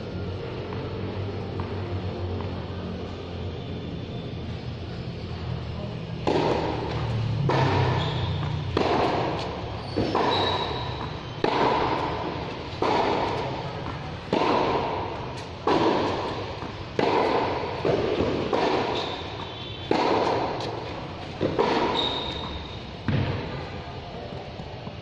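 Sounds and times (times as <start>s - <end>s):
tennis ball racket hits: 6.1s - 23.4s
shoe squeaks: 6.9s - 13.7s, 18.9s - 23.0s.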